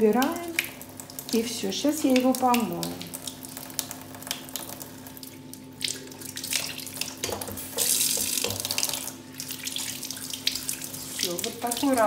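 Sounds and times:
tap water running into sink: 0.0 - 12.0.

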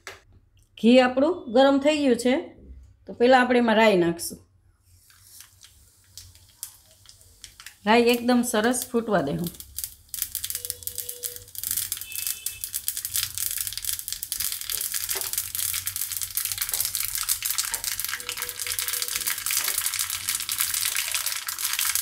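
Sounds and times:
seeds popping and sizzling in oil: 5.0 - 22.0.

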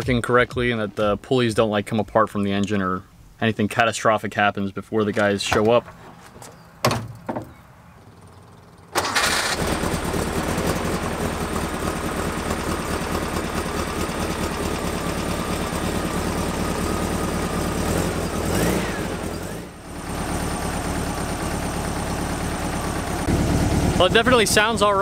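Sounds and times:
engine starting and running: 8.1 - 25.0.

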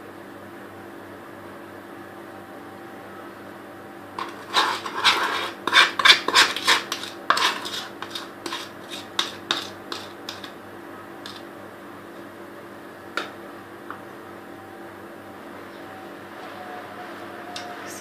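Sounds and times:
faint steady hum: 0.0 - 18.0
spoon scraping a bowl: 4.2 - 10.6, 11.2 - 11.4.

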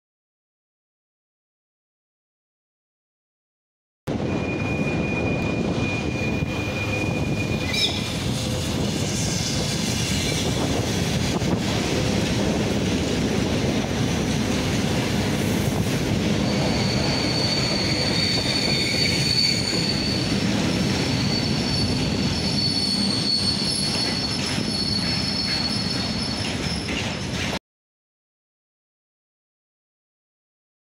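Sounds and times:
high wheel squeal: 4.1 - 11.5, 16.4 - 27.5
train wheels rumbling on rails: 4.1 - 27.6.

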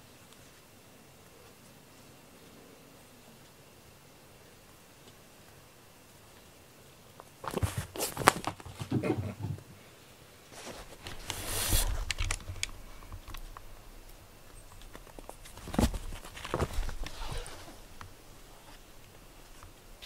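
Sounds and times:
rustle: 0.0 - 20.0
paws scratching fabric mat: 7.4 - 9.4, 10.5 - 12.6, 14.9 - 19.6.

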